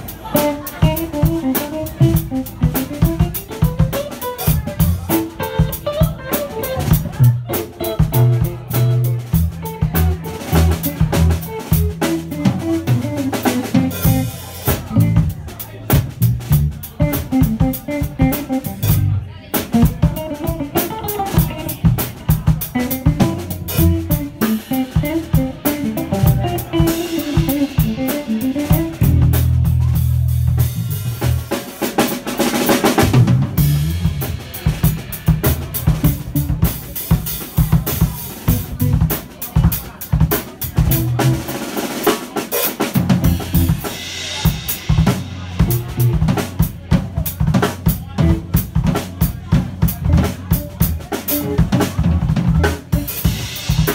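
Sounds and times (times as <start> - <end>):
drum kit beat: 0.0 - 53.9
electric guitar picked melody: 19.8 - 21.9, 22.8 - 29.6.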